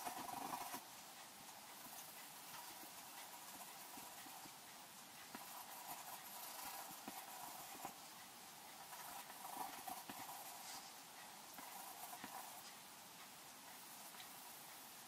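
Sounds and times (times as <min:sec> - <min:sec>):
pencil scratching on paper: 0:00.0 - 0:00.9, 0:01.8 - 0:04.6, 0:05.2 - 0:12.8
pencil lead ticks: 0:00.0 - 0:15.0.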